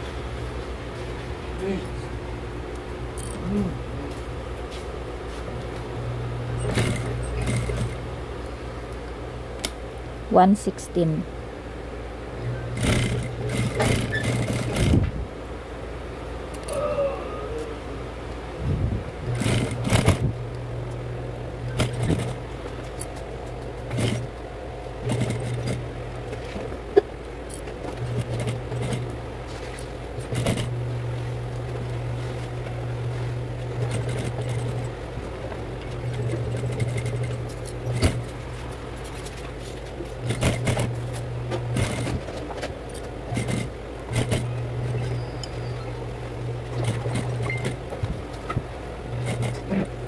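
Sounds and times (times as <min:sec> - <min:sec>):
sewing machine stitching: 0:06.6 - 0:08.0, 0:12.5 - 0:15.0, 0:19.3 - 0:20.3, 0:21.7 - 0:22.4, 0:23.8 - 0:24.3, 0:25.0 - 0:26.6, 0:27.9 - 0:29.2, 0:30.2 - 0:30.8, 0:33.6 - 0:35.0, 0:35.8 - 0:38.4, 0:40.1 - 0:42.3, 0:43.3 - 0:48.1, 0:49.1 - 0:50.0.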